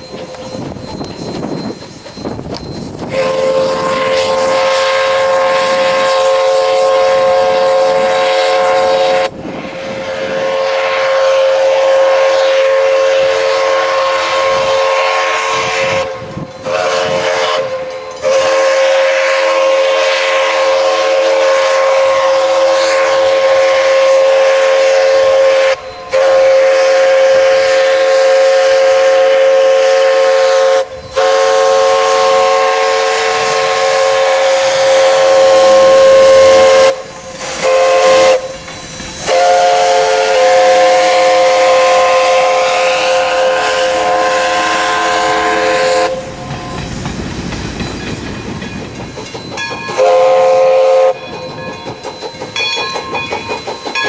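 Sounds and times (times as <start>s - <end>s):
steam locomotive chime whistle: 0.0s - 54.0s.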